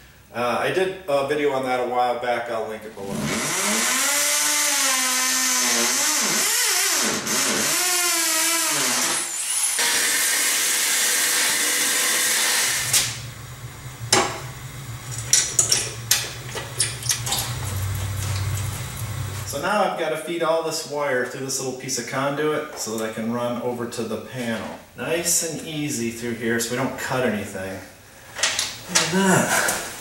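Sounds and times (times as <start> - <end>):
hammer drill boring into block: 3.3 - 13.1
sharp clicks and knocks: 14.1 - 18.7.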